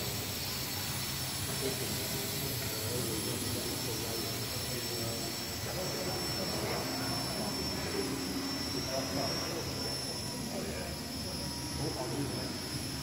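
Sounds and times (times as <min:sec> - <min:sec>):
drone buzzing and whining: 0:00.0 - 0:13.0.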